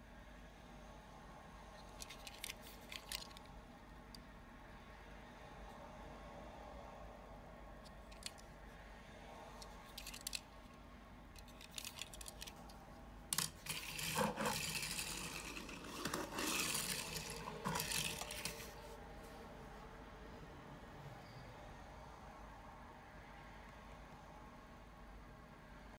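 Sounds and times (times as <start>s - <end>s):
toy car clicks: 2.0s - 3.5s, 9.9s - 10.5s, 11.4s - 12.6s, 13.3s - 18.7s
toy car wheels rolling on tabletop: 9.9s - 10.5s, 11.4s - 12.6s, 13.3s - 18.8s.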